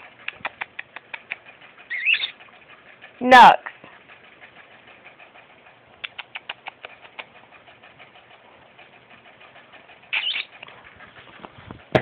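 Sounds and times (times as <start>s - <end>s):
kissy lip squeaks: 0.2s - 2.4s, 6.0s - 7.4s, 10.1s - 10.6s.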